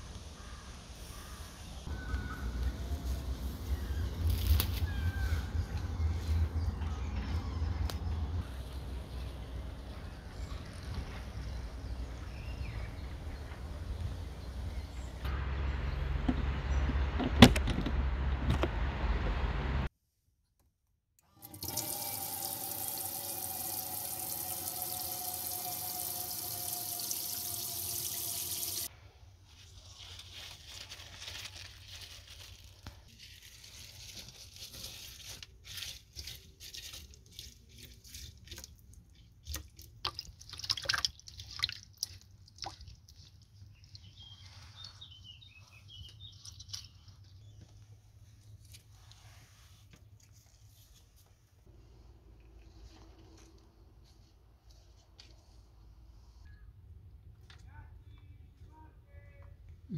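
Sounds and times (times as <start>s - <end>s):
hands swishing leaves in water: 29.5s - 47.3s.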